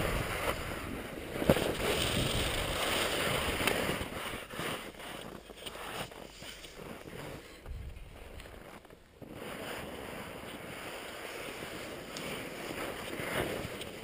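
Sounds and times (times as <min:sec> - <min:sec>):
skis scraping over snow: 0:00.0 - 0:14.0
wind on microphone: 0:00.0 - 0:14.0.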